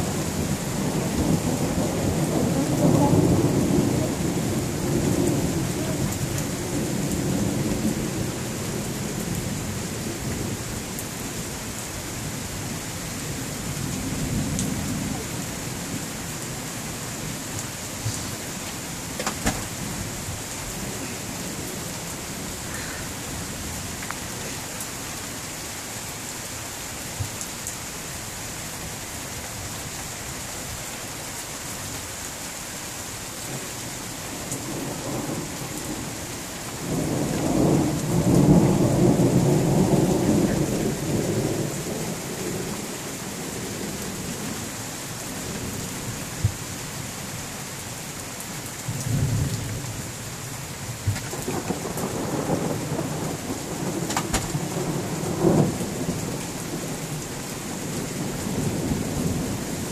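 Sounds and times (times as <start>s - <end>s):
steady rain falling: 0.0s - 59.9s
thunder rolling: 0.8s - 7.6s, 51.0s - 56.4s.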